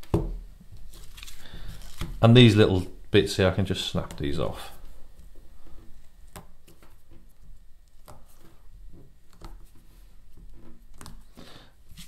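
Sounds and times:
faint handling noise: 0.0s - 12.0s.

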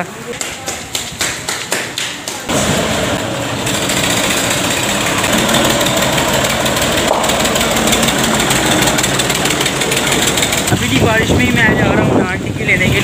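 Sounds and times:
tractor diesel engine passing: 2.5s - 12.2s.

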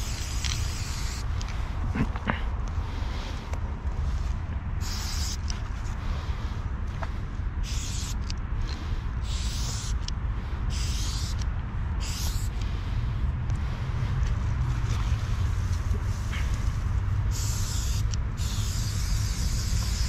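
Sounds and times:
spray-paint can hissing: 0.0s - 1.3s, 4.8s - 5.5s, 7.6s - 8.2s, 9.2s - 10.1s, 10.7s - 11.4s, 12.0s - 12.5s, 17.3s - 20.0s
steady low rumble: 0.0s - 20.0s.

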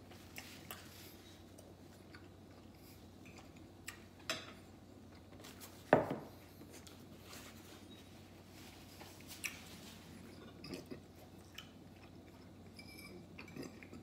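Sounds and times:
glass set down on wooden table: 5.9s - 6.3s.

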